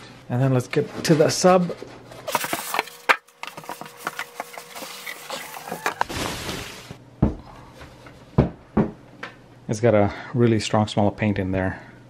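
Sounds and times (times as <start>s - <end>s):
packaging rustling and crackling: 2.2s - 7.0s.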